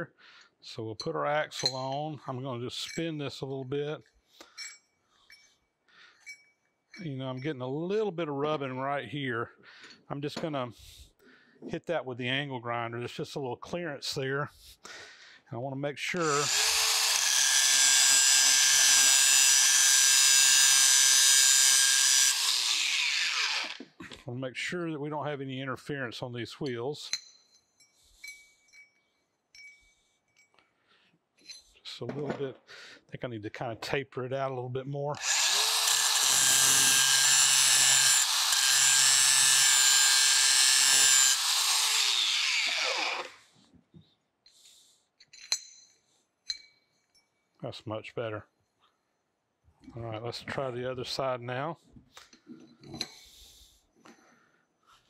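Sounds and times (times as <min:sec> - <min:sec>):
angle grinder grinding metal: 0:16.2 - 0:24.0, 0:35.2 - 0:43.5.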